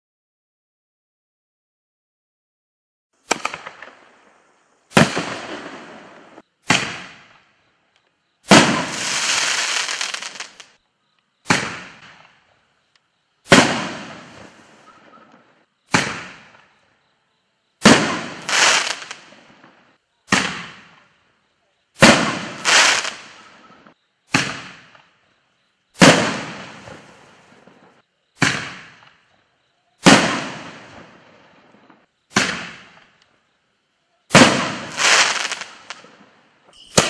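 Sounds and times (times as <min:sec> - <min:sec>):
firework shells exploding: 0:03.2 - 0:07.5, 0:08.4 - 0:10.8, 0:11.4 - 0:12.5, 0:13.4 - 0:16.8, 0:17.8 - 0:21.2, 0:22.0 - 0:25.2, 0:26.0 - 0:29.3, 0:30.0 - 0:33.2, 0:34.3 - 0:37.0.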